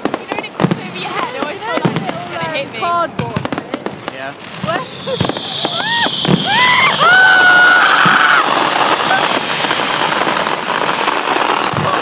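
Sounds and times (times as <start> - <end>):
firework bangs: 0.0 - 12.0
firework crackling: 0.0 - 12.0
rising firework shrieks: 4.2 - 12.0.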